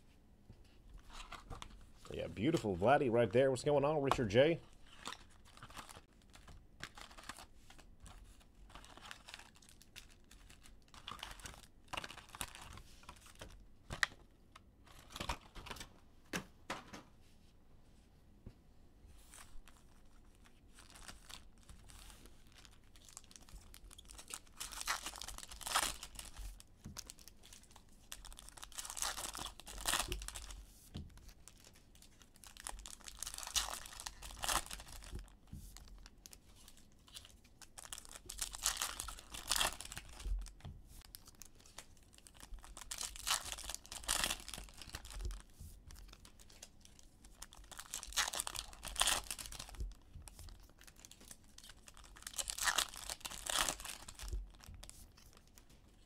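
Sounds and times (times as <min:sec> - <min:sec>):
foil packs tearing and crinkling: 0:08.7 - 0:13.4, 0:20.8 - 0:30.6, 0:31.2 - 0:49.9, 0:50.6 - 0:55.4.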